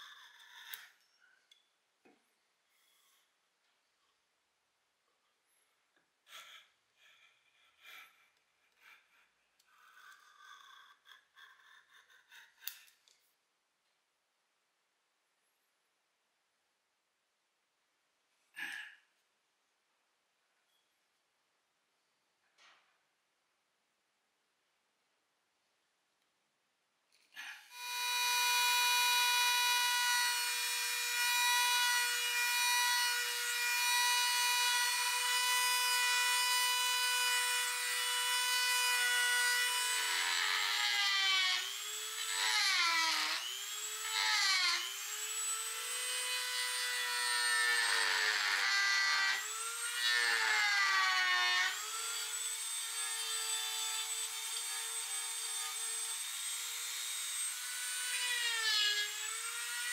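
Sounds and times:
rotary tool whining: 0:27.7 - 0:59.9.

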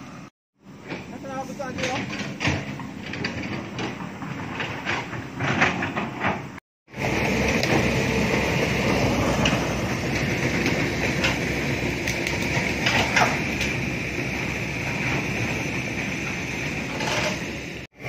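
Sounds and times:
excavator engine rumbling: 0:00.0 - 0:18.0
irregular knocks and rustles: 0:01.8 - 0:06.6.

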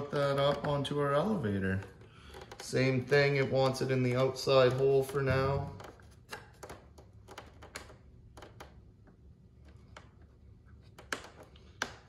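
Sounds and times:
small plastic clicks and taps: 0:01.7 - 0:03.8, 0:04.6 - 0:12.0.

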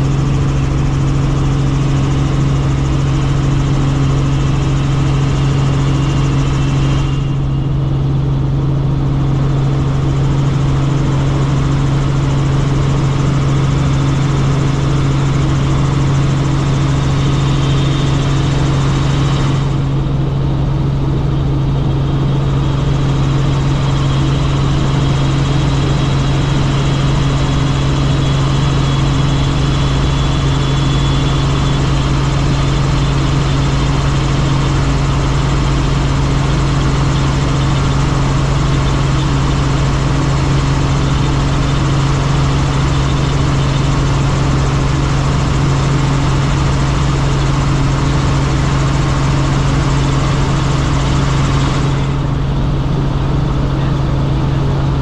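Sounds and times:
helicopter drone: 0:00.0 - 0:55.0
faint high whine: 0:00.4 - 0:10.2, 0:14.6 - 0:20.4, 0:21.9 - 0:34.0.

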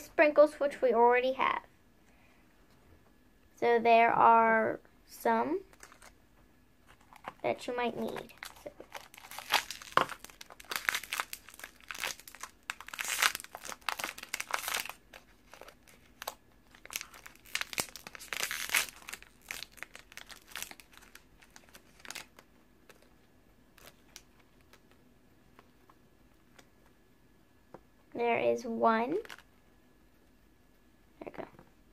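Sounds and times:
plastic bag crinkling: 0:05.7 - 0:06.2, 0:06.8 - 0:25.0, 0:29.2 - 0:29.5.

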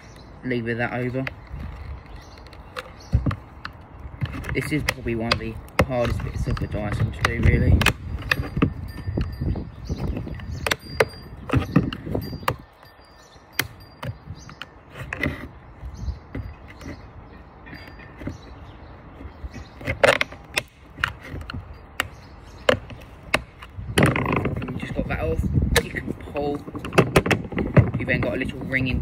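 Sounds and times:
sharp plastic clicks: 0:01.0 - 0:09.4, 0:19.5 - 0:25.0.

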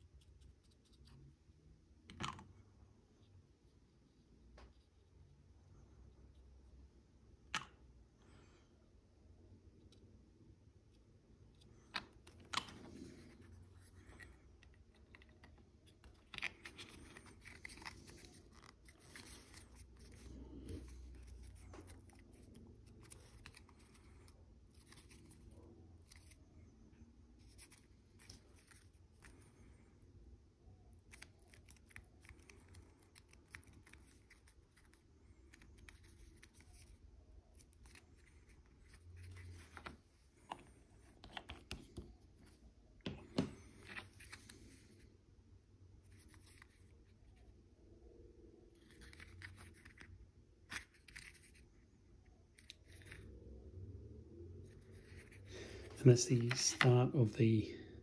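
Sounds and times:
plastic parts clicking and scraping: 0:11.5 - 0:24.1.

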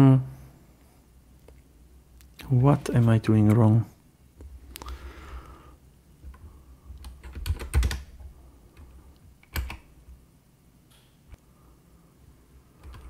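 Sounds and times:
keyboard typing: 0:06.2 - 0:09.9, 0:12.8 - 0:13.0.

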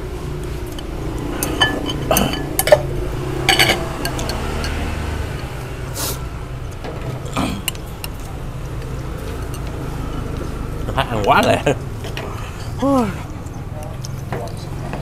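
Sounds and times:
low background rumble: 0:00.0 - 0:13.8
spoon clinking on bowl: 0:00.7 - 0:02.9, 0:03.5 - 0:04.8.

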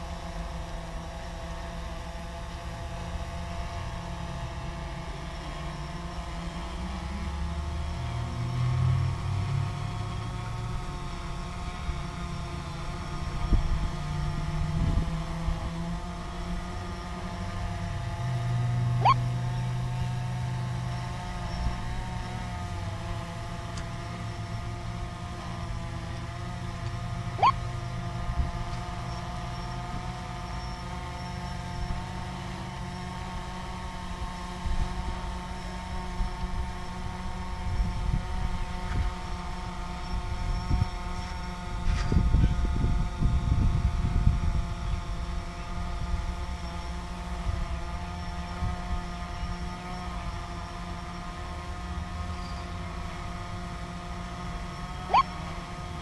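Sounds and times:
drone propeller whine: 0:00.0 - 0:56.0
quick rising whines: 0:18.8 - 0:19.4, 0:27.4 - 0:27.7, 0:54.8 - 0:55.4.

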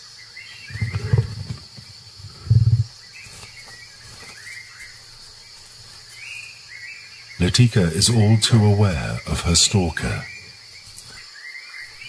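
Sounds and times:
bird chirps: 0:00.0 - 0:12.0
high insect chorus: 0:00.0 - 0:12.0
tiger growling: 0:00.5 - 0:03.0.

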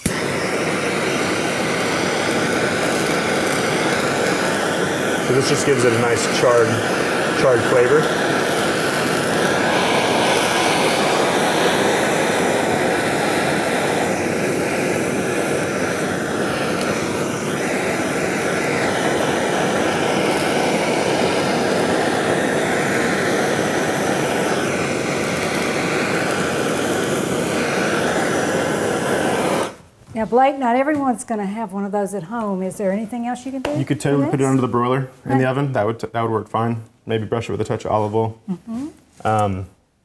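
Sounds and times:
gas torch flame hissing: 0:00.0 - 0:30.8.

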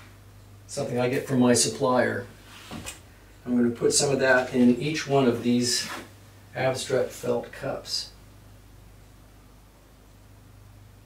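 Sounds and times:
light hiss: 0:00.0 - 0:08.1
faint low hum: 0:00.0 - 0:11.0.

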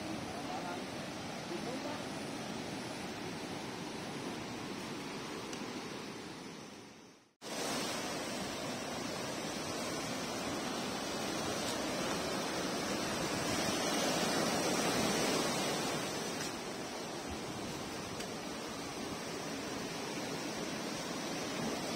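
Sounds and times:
surf breaking on beach: 0:07.4 - 0:21.9.

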